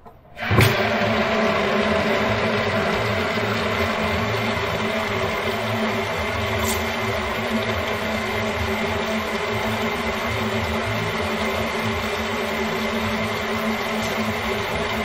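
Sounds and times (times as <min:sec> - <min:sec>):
water running from tap into sink: 0:00.4 - 0:15.0.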